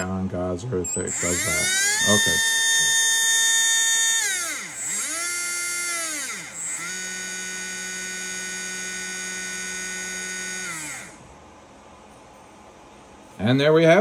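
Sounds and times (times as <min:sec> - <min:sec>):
electric motor whine: 0:01.0 - 0:11.2.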